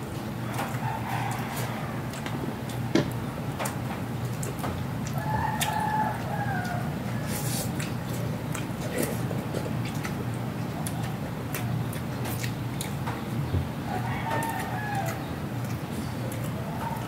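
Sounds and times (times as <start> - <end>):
chewing sounds: 0.5 - 17.0
chickens clucking: 4.5 - 17.0.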